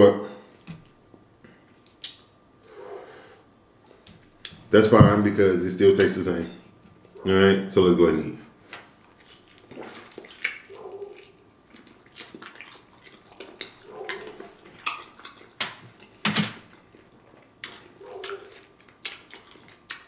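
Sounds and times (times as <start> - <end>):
chewing mouth sounds: 8.9 - 20.0
crunching fried chicken: 8.9 - 20.0.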